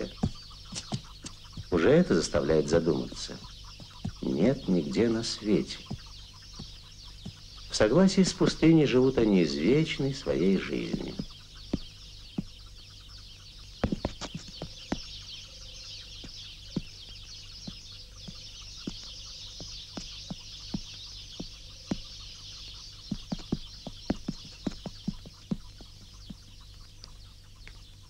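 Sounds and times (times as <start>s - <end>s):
hooves and stones on rock: 0.0s - 12.8s, 13.7s - 27.9s
steady high hiss: 0.0s - 12.8s.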